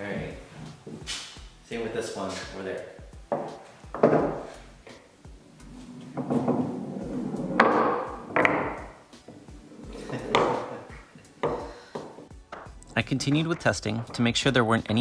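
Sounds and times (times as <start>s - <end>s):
sharp wooden knocks: 3.3s - 4.5s, 7.6s - 8.9s, 10.3s - 10.7s.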